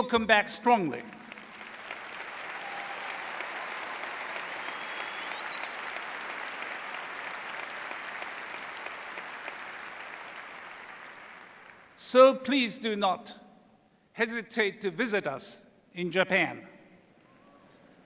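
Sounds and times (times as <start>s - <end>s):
audience applauding: 1.2s - 12.0s
whistle: 4.6s - 5.8s.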